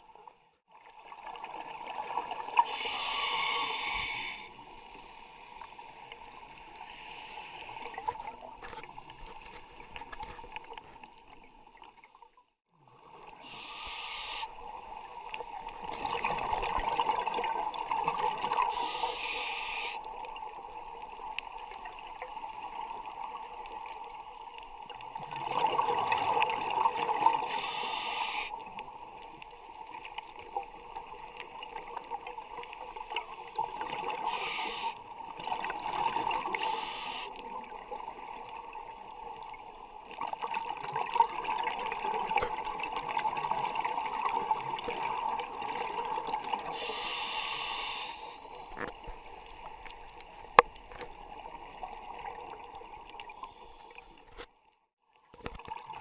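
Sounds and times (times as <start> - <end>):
underwater background: 0.0 - 56.0
regulator hissing inhalations: 2.5 - 5.5, 6.6 - 8.1, 13.4 - 14.7, 18.7 - 20.1, 27.4 - 28.6, 32.6 - 35.0, 36.4 - 37.4, 46.7 - 49.4.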